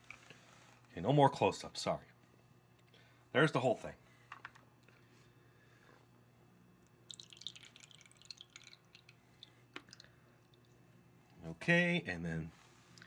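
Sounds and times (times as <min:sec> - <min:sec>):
water dripping into plastic cup: 0:06.8 - 0:10.8.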